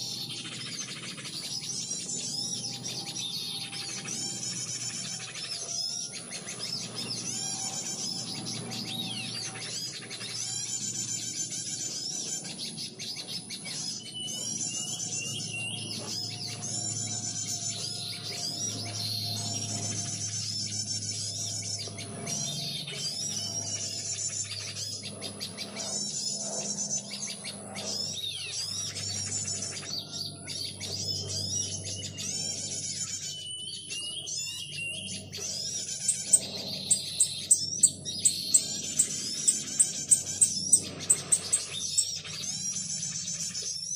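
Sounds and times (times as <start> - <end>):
low hum: 0.0 - 33.4
small birds chirping and chattering: 0.0 - 43.9.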